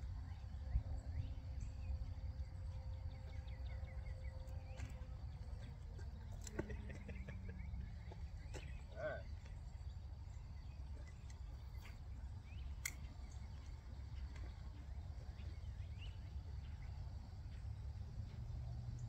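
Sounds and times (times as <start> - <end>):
bird chirps: 0.0 - 19.0
low steady rumble: 0.0 - 19.0
sharp click: 12.8 - 13.2.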